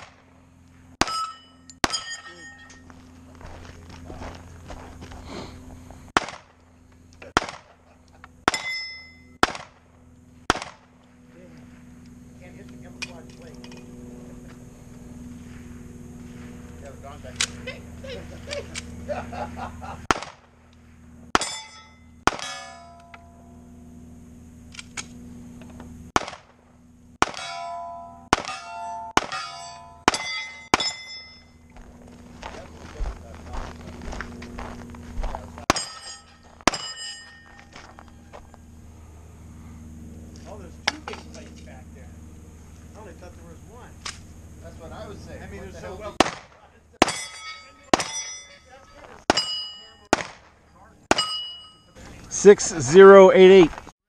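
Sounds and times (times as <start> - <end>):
steel target ringing: 1.0 - 3.0, 8.4 - 9.4, 21.3 - 23.7, 27.2 - 31.7, 35.7 - 37.8, 47.0 - 50.3, 51.1 - 52.0
pistol shots: 6.2 - 6.6, 7.3 - 7.8, 9.4 - 9.8, 10.5 - 10.9, 20.1 - 20.5, 22.2 - 22.6, 26.2 - 26.6, 27.2 - 27.5, 28.3 - 30.9, 46.2 - 47.3, 47.9 - 48.3, 50.1 - 51.4.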